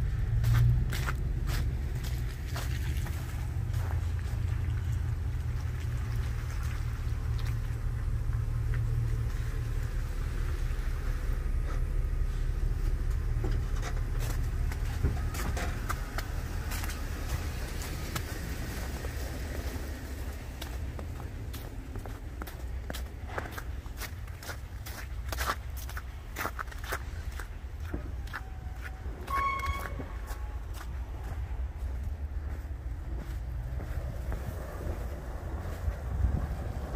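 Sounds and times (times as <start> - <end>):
footsteps on snow and slush: 0.0 - 6.3, 11.7 - 36.9
truck engine idling: 3.2 - 19.3.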